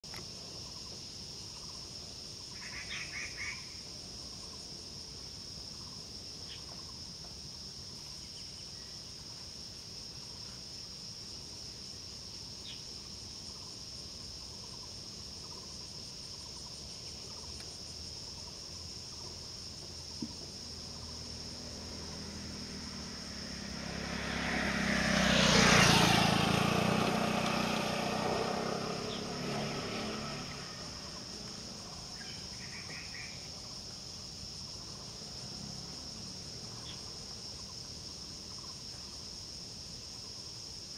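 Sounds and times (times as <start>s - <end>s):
insects droning: 0.0s - 40.9s
bird calls: 2.5s - 4.7s, 31.0s - 33.6s
low engine hum: 19.8s - 33.9s.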